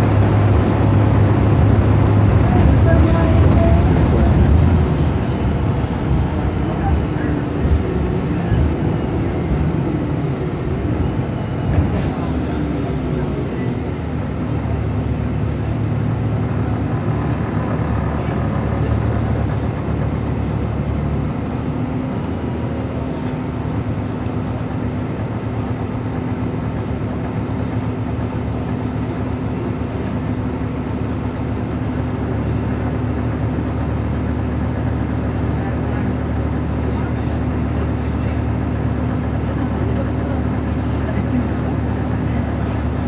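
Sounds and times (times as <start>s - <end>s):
bus diesel engine drone: 0.0s - 43.0s.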